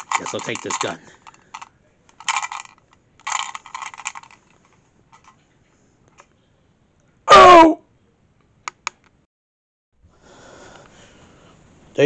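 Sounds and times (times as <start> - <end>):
plastic toy clicks: 0.0 - 4.4.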